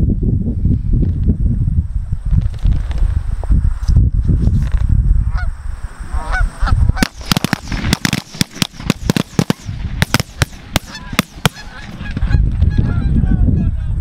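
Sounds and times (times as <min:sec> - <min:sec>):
geese honking: 0:06.1 - 0:08.1, 0:09.2 - 0:13.7
shotgun blasts: 0:07.0 - 0:12.2.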